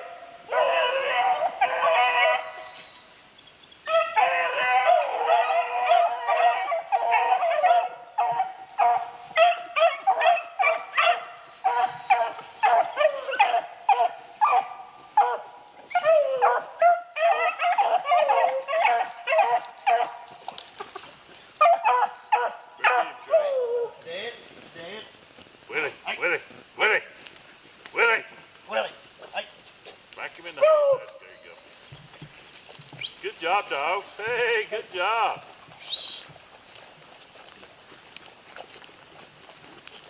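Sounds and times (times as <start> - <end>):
hounds baying: 0.0 - 3.1, 3.8 - 24.0, 30.3 - 31.5.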